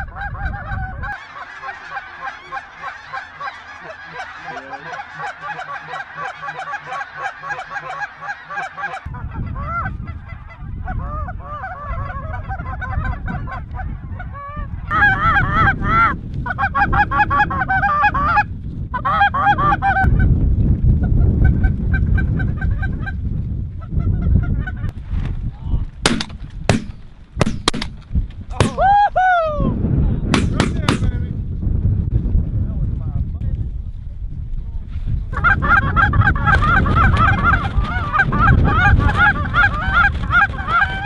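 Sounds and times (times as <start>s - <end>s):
geese calling: 0.0s - 20.1s, 35.3s - 41.0s
wind rumbling on microphone: 0.0s - 41.0s
sharp bangs: 26.0s - 28.8s, 30.3s - 31.2s.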